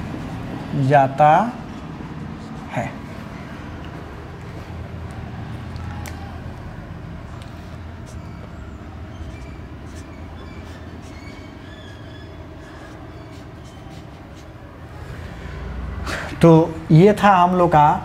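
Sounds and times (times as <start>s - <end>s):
marker squeaking on whiteboard: 1.6s - 4.0s, 7.3s - 14.8s.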